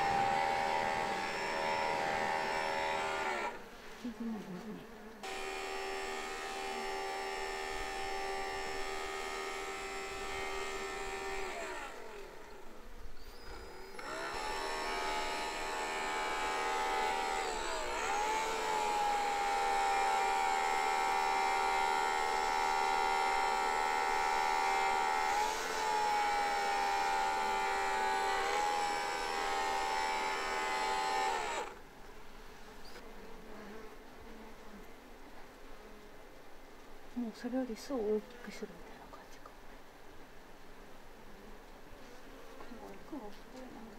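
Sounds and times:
cordless blower motor humming: 0.0s - 3.7s, 5.2s - 31.8s.

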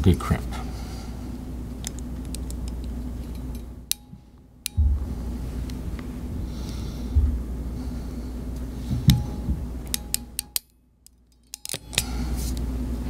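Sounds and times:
steady low hum: 0.0s - 13.0s
crimp tool metallic clicks: 9.9s - 10.7s, 11.3s - 12.1s.

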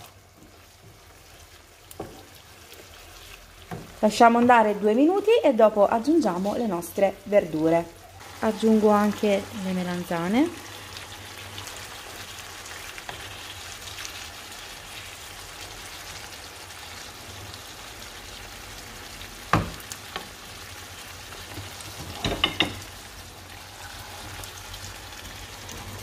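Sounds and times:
wooden spoon stirring: 0.0s - 5.3s
sauce sizzling in pan: 0.0s - 26.0s.

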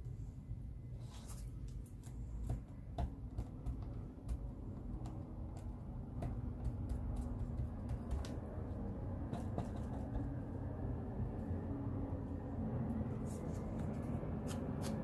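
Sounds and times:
steady low hum: 0.0s - 15.0s
foam tool tapping paper: 2.0s - 10.5s
paper rustling: 13.2s - 15.0s.

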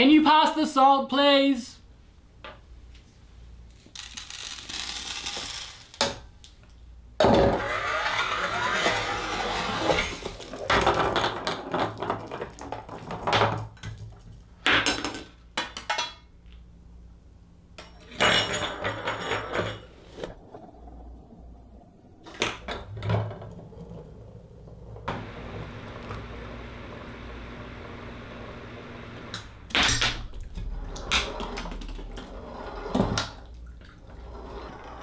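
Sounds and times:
objects knocking and clattering on wood: 10.2s - 16.2s.

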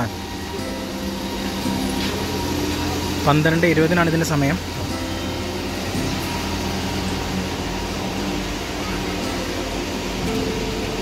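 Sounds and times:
ferry machinery hum: 0.0s - 11.0s.

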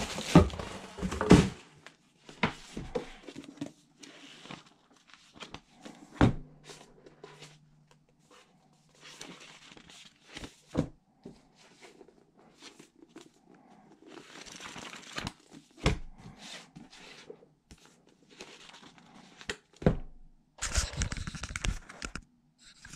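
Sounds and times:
book pages rustling: 1.3s - 19.8s, 20.6s - 22.9s.

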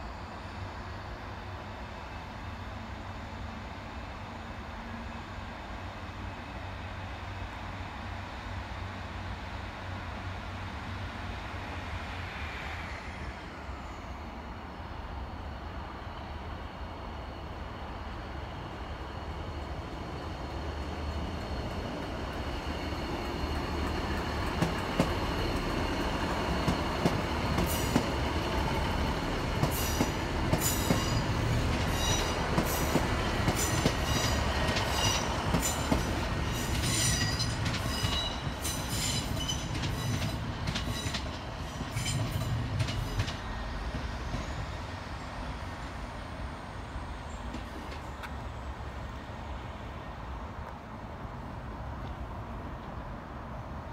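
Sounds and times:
train low rumble: 0.0s - 53.9s
train wheels squealing: 9.9s - 45.8s.

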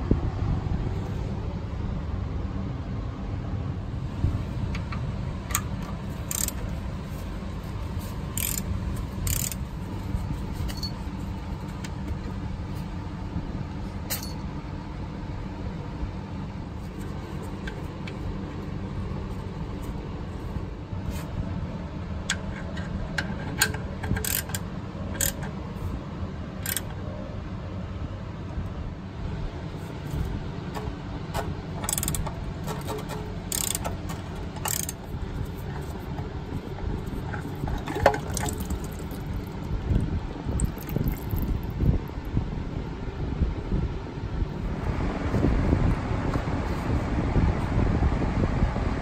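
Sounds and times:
steady low rumble: 0.0s - 49.0s
ratchet torque wrench clicking: 5.5s - 6.7s, 8.3s - 9.6s, 23.6s - 25.5s, 26.6s - 27.0s, 31.8s - 35.0s
hand tools clicking and clinking: 6.3s - 6.7s, 8.4s - 9.6s, 31.8s - 35.0s, 37.1s - 39.5s.

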